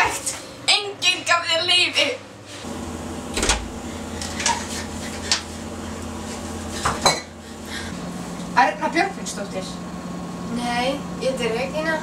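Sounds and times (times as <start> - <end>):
steady low hum: 1.3 - 12.0
door opening: 2.7 - 4.6.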